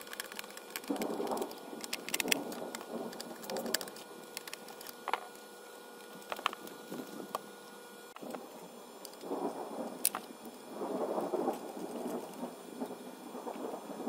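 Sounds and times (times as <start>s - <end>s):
sharp plastic clicks: 0.0s - 5.2s
hands rustling plastic: 0.0s - 7.4s.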